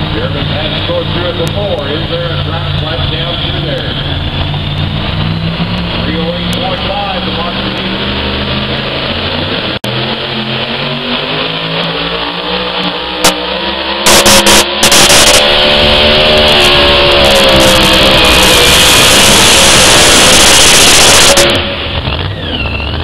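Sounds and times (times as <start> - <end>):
engine running hard under load: 0.0 - 23.0.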